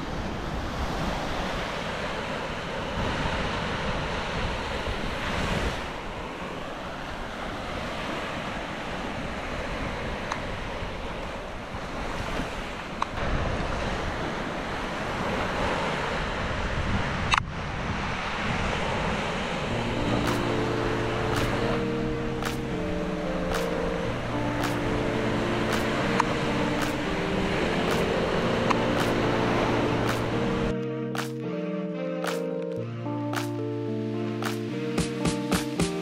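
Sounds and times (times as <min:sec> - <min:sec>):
wind on microphone: 0:07.1 - 0:30.7
surf breaking on beach: 0:11.9 - 0:23.8.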